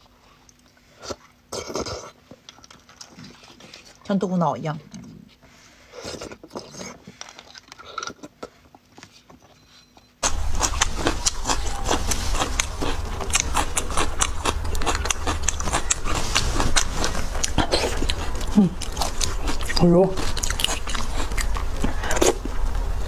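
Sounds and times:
wet mouth sounds: 0:10.2 - 0:22.5
low hum: 0:10.2 - 0:23.0.

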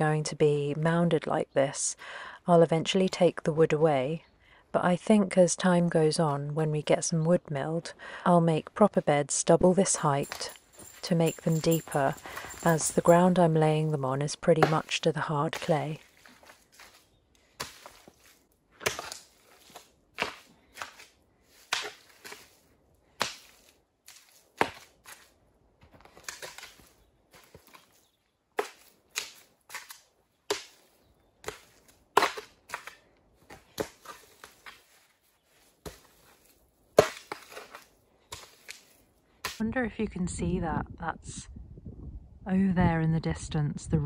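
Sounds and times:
shovel scraping soil: 0:10.0 - 0:25.4, 0:26.0 - 0:28.0, 0:28.6 - 0:39.6.

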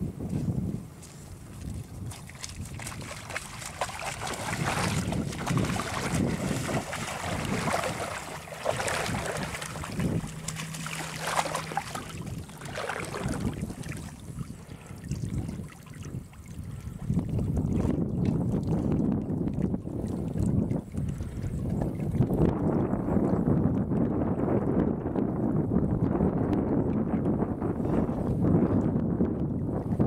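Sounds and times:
wind buffeting microphone: 0:00.0 - 0:30.0
water splashing and sloshing: 0:01.5 - 0:24.2.

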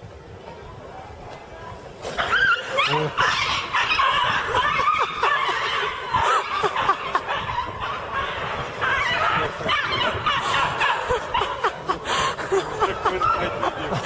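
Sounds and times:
animal yelps: 0:02.1 - 0:11.9
people laughing: 0:02.2 - 0:14.0.

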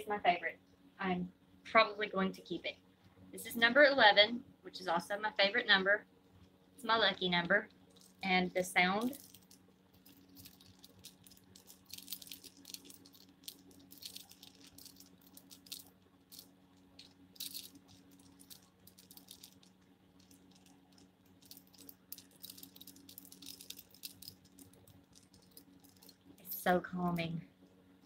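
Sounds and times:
wooden beads clicking: 0:09.0 - 0:27.2.

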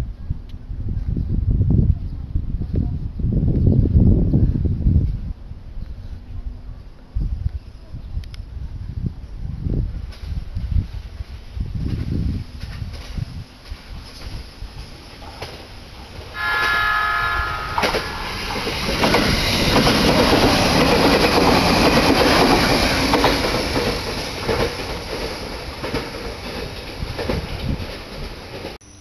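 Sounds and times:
train rumble and wheel clatter: 0:00.0 - 0:28.8
train horn chord: 0:16.3 - 0:19.2.

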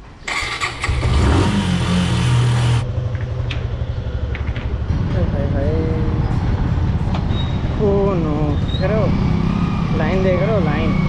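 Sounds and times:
motorcycle engine starting and idling: 0:00.2 - 0:05.8.

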